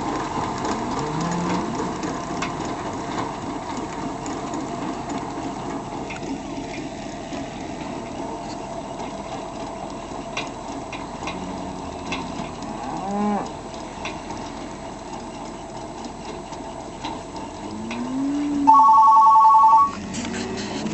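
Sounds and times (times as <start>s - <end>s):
tractor and bale feeder running: 0.0s - 20.9s
cattle mooing: 0.9s - 1.8s, 11.3s - 13.6s, 17.7s - 20.8s.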